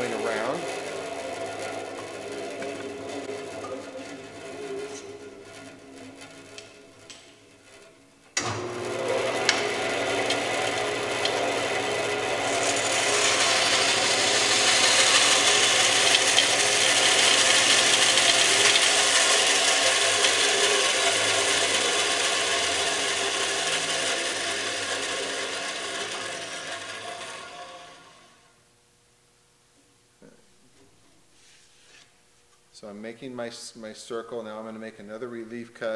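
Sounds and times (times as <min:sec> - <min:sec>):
saw blade cutting wood: 0:00.0 - 0:07.4, 0:08.4 - 0:28.3
bandsaw motor humming: 0:00.0 - 0:28.5.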